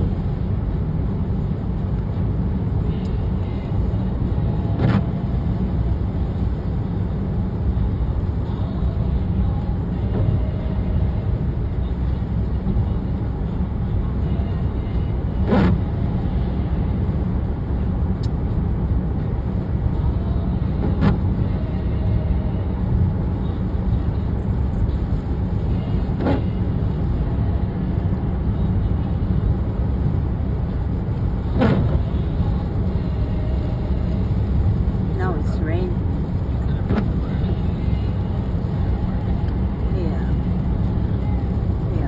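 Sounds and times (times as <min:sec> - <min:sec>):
road and tyre noise in car: 0:00.0 - 0:42.0
windshield wipers swishing: 0:03.1 - 0:07.9, 0:15.3 - 0:16.2, 0:20.5 - 0:21.4, 0:23.0 - 0:27.3, 0:28.0 - 0:41.9.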